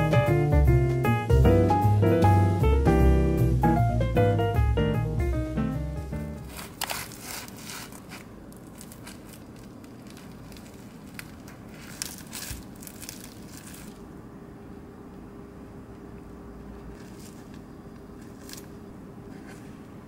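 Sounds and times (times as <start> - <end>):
flaky crust crackling: 6.2 - 15.3, 15.9 - 20.0
knife sawing through croissant: 6.5 - 9.2.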